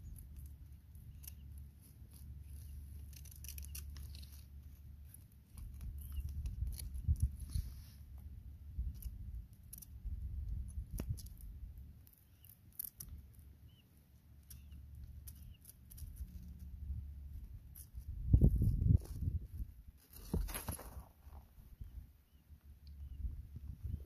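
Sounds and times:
low wind rumble: 5.8 - 11.9, 16.2 - 20.0, 21.5 - 24.0.

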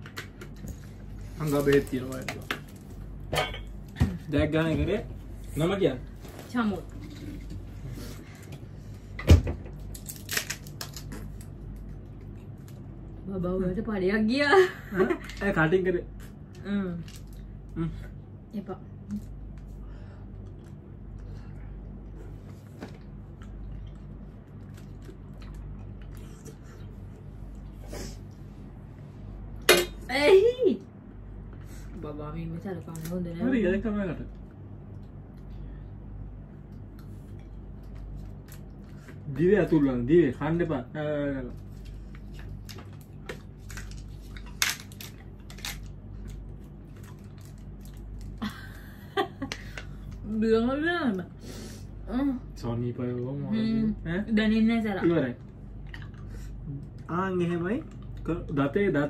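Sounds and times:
steady low hum: 0.0 - 59.0
person chewing noodles: 23.1 - 27.8, 55.7 - 57.0.

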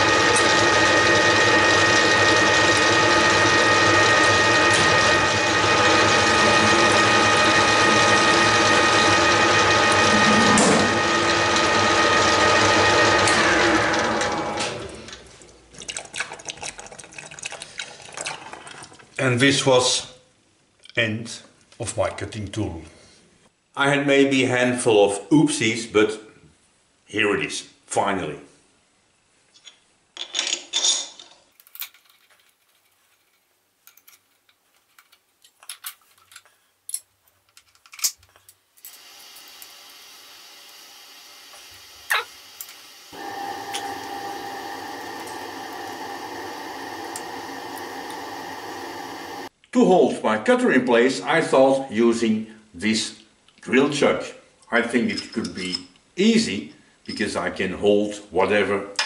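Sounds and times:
steady machine hum: 0.0 - 14.9, 38.9 - 49.5
metal lathe gear whine: 0.0 - 15.0, 38.9 - 49.5.

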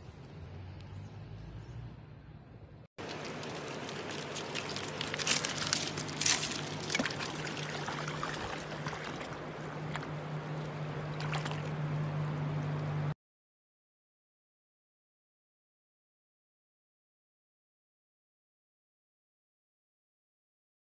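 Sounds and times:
low steady hum: 0.0 - 13.2
dog splashing through water: 3.0 - 10.2, 11.1 - 11.9
stream rushing: 3.0 - 13.1.

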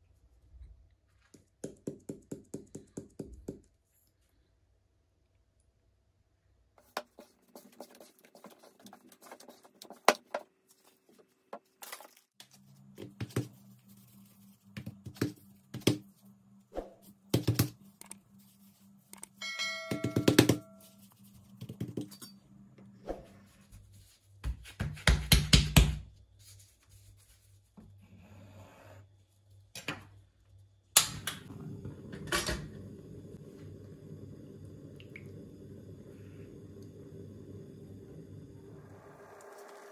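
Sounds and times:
short chime: 19.4 - 21.0.

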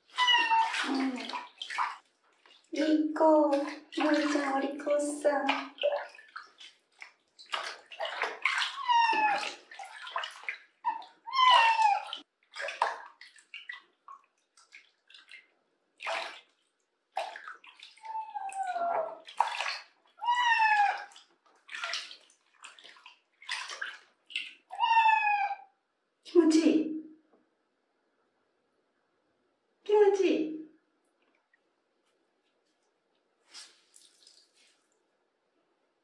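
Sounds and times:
cat meowing: 0.0 - 1.0, 8.7 - 9.6, 11.3 - 12.2, 20.2 - 21.1, 24.7 - 25.7
water splashing in a tub: 0.0 - 25.6, 33.4 - 35.1.

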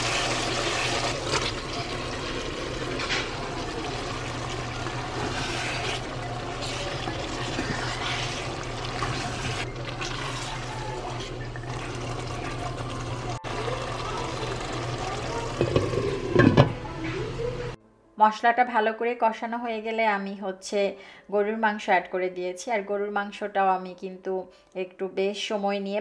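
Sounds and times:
meat sizzling in oil: 0.0 - 13.2
wooden spatula scraping: 4.8 - 11.4.

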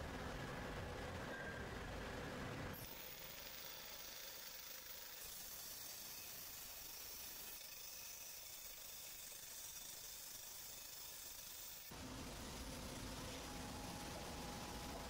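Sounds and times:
faint steady hiss: 11.9 - 15.0.

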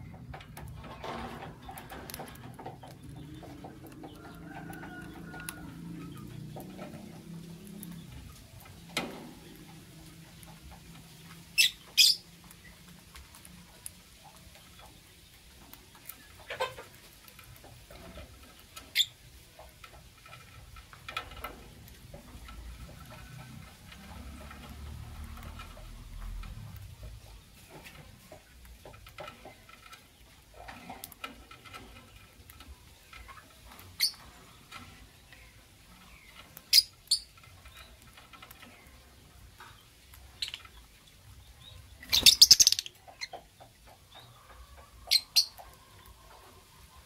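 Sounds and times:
lovebirds shrill chirps: 11.6 - 12.2, 36.2 - 37.9, 41.6 - 43.3, 45.0 - 45.6.

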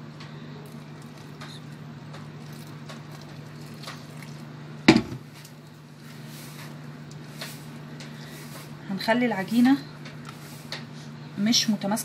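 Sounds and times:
steady low hum: 0.0 - 12.0
hand squishing flour dough: 0.2 - 11.0
water pouring: 2.4 - 4.5.

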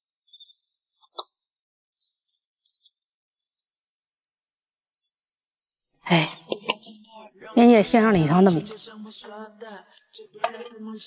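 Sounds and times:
insect chirping: 0.2 - 7.0.

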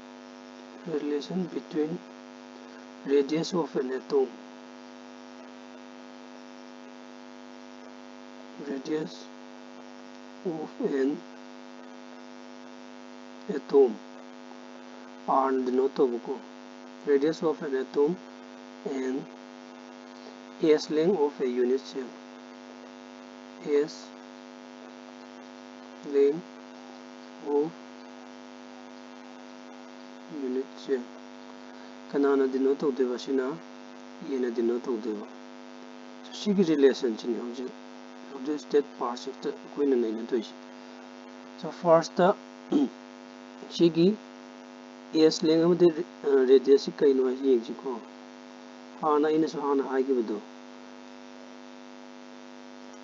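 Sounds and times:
electrical mains hum: 0.0 - 53.0
person speaking: 0.8 - 2.0, 2.6 - 4.4, 8.6 - 9.3, 10.4 - 11.4, 13.4 - 16.4, 17.0 - 19.4, 20.1 - 22.2, 23.6 - 24.2, 26.0 - 26.6, 27.2 - 27.9, 30.2 - 33.6, 34.2 - 35.4, 36.2 - 40.6, 41.6 - 43.0, 43.6 - 44.2, 45.2 - 48.1, 49.0 - 50.5
short spoken syllables: 42.7 - 43.0.

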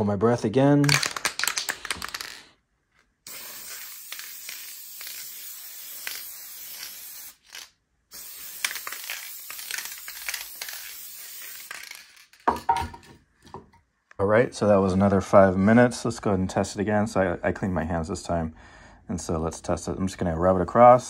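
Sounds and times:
aerosol can spraying: 3.2 - 12.6.

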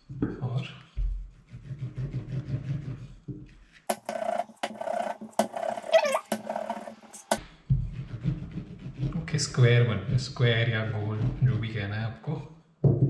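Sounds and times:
rolling pin rolling dough: 3.9 - 9.3.

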